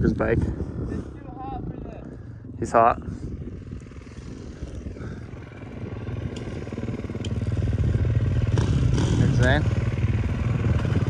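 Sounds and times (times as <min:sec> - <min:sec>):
motorbike engine running: 0:03.2 - 0:11.0.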